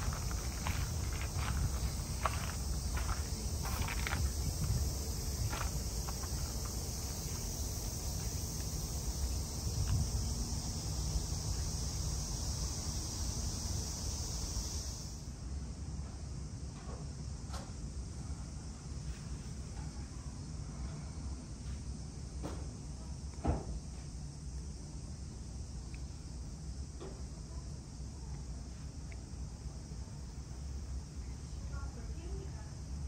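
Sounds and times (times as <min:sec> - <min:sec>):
footsteps on gravel: 0:00.0 - 0:08.8
cicadas chorus: 0:00.0 - 0:33.0.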